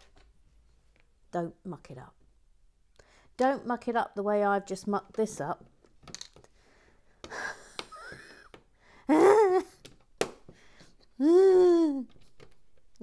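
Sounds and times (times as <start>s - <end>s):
plastic bricks clicking: 5.8s - 6.5s
person humming: 9.1s - 9.8s, 11.2s - 12.1s
person sighing: 11.1s - 12.1s.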